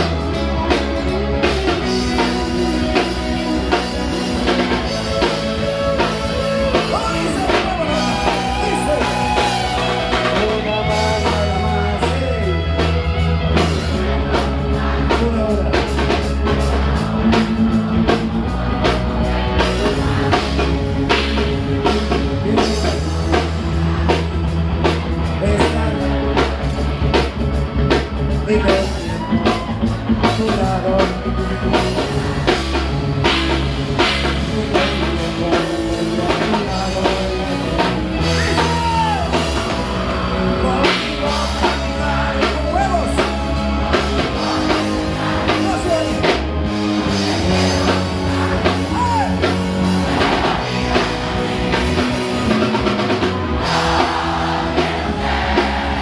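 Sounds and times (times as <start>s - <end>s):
person singing: 0.0s - 24.4s, 25.3s - 26.7s, 34.0s - 46.4s
drum kit beat: 0.0s - 56.0s
live rock band playing: 0.0s - 56.0s.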